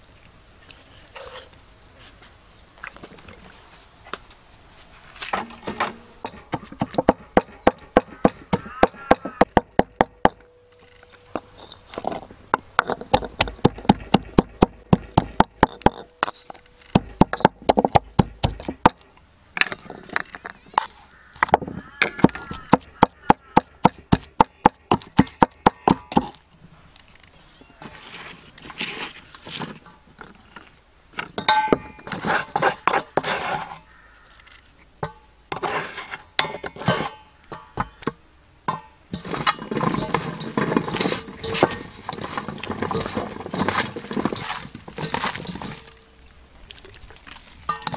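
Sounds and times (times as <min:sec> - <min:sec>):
pestle pounding in wooden mortar: 0:05.8 - 0:10.4, 0:12.0 - 0:19.0, 0:21.4 - 0:26.4, 0:39.2 - 0:45.9
spoon scraping in metal bowl: 0:32.0 - 0:34.0, 0:35.5 - 0:37.2.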